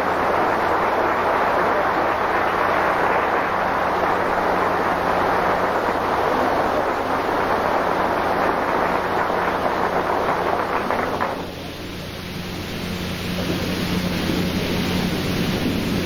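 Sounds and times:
faint electrical hum: 0.0s - 16.0s
audience applauding: 0.9s - 11.5s.

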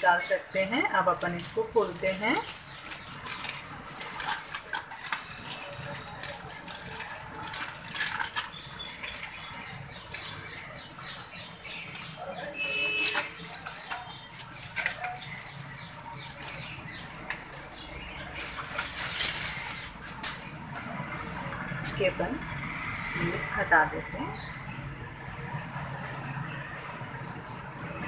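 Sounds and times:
aluminium foil crinkling: 0.5s - 22.0s.

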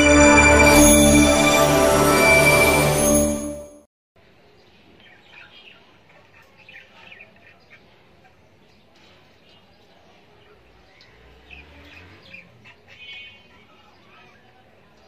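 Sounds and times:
intro music: 0.0s - 3.9s.

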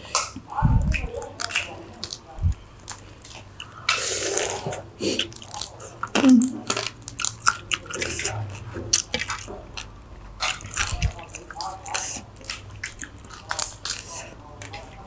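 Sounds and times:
person chewing: 0.0s - 15.0s
prawn shells cracking and peeling: 0.1s - 15.0s.

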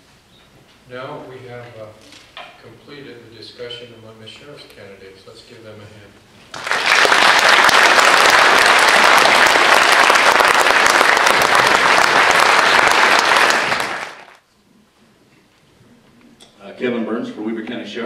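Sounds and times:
audience applause: 6.5s - 14.4s.

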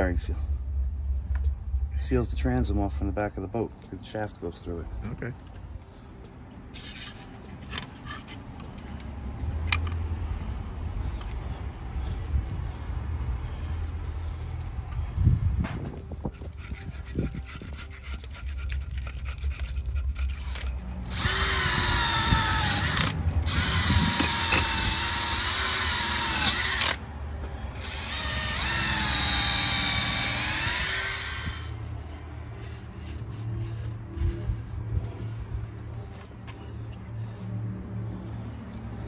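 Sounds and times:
cordless drill with wire brush: 16.5s - 27.0s, 27.7s - 31.8s.

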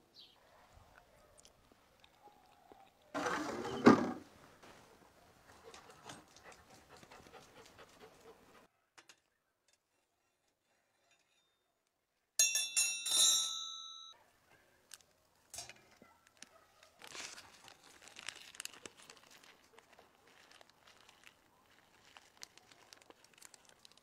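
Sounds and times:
baking paper crinkling: 14.9s - 24.0s.

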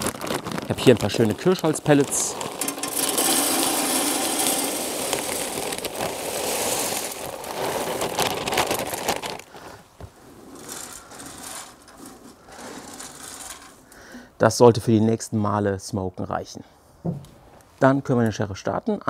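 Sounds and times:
hand shuffling pellets: 0.0s - 14.0s
wood pellets pouring into hopper: 0.0s - 14.2s.

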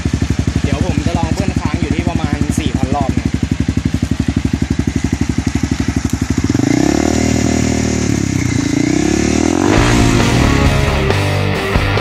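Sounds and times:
motorcycle engine revving: 0.0s - 12.0s.

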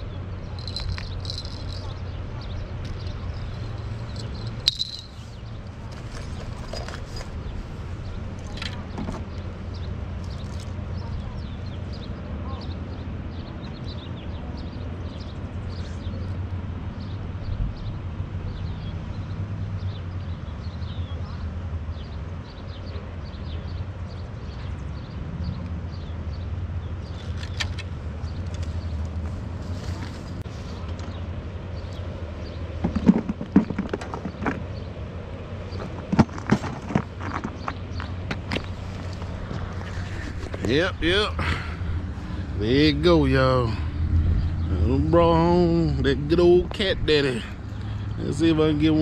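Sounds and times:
wind buffeting microphone: 35.6s - 49.0s
wind rumbling on microphone: 43.6s - 49.0s.

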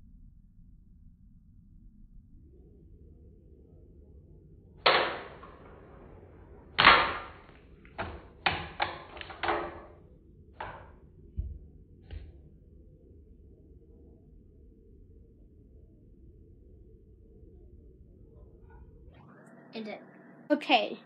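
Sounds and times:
toy spinner launcher snapping: 4.9s - 5.6s, 6.8s - 7.4s
plastic clicks and clatters: 6.8s - 9.9s
soft thumps: 10.6s - 12.3s.

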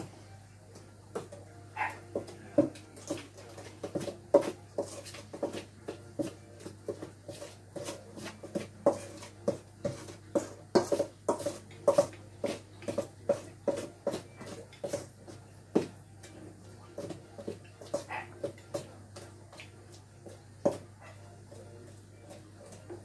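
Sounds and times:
spoon scraping steel bowl: 7.0s - 15.2s.

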